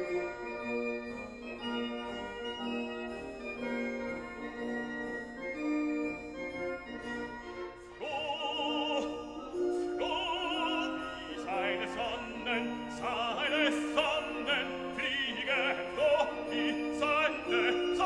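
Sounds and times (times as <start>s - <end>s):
operatic singing voice: 8.0s - 18.0s.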